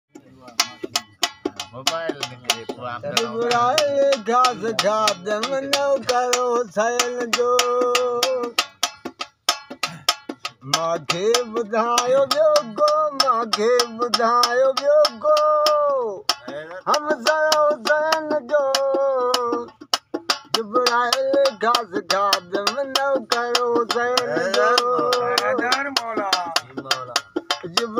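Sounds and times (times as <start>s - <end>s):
man singing: 0.1s - 8.7s, 10.6s - 27.9s
clicking percussion beat: 0.1s - 27.9s.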